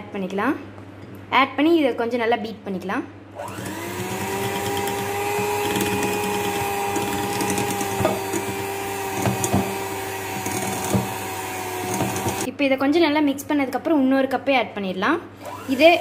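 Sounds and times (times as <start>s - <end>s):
electric hand mixer whine: 3.4s - 12.5s, 15.4s - 16.0s.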